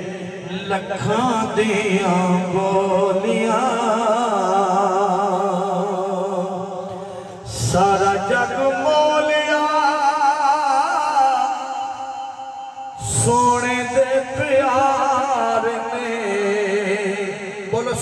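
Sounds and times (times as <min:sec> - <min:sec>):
man singing through sound system: 0:00.0 - 0:18.0.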